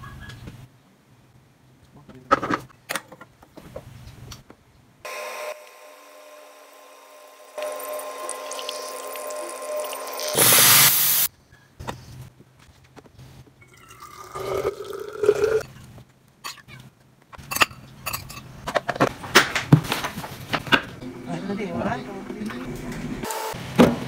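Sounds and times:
espresso machine humming: 5.1 - 11.3
coffee being poured: 7.6 - 10.4
loud steam hiss: 7.6 - 11.3.

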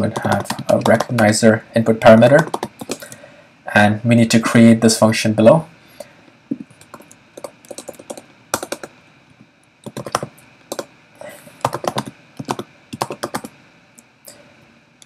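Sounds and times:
keyboard typing: 0.1 - 1.4, 2.4 - 3.2, 6.5 - 8.9, 9.8 - 10.9, 11.6 - 13.5.

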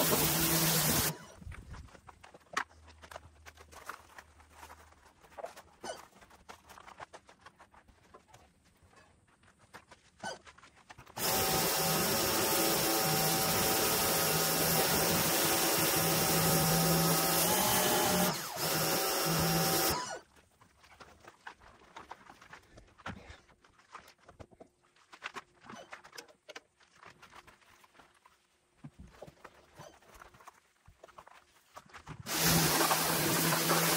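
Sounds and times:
pressure washer motor hum: 0.0 - 1.2, 11.2 - 20.2, 32.3 - 33.9
spray hissing: 32.3 - 33.9.

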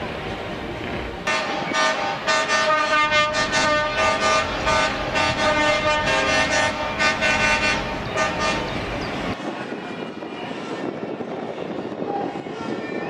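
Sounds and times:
truck horns tooting: 1.3 - 8.9.

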